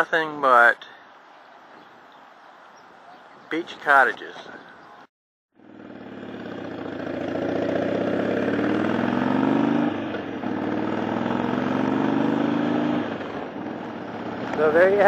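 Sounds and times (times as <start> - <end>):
motorcycle engine accelerating: 5.6 - 15.0.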